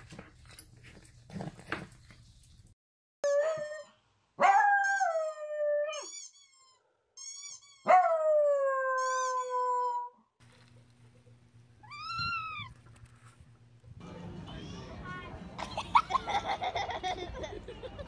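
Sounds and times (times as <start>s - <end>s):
dog yipping: 3.2s - 8.2s, 8.9s - 10.1s, 11.8s - 12.8s.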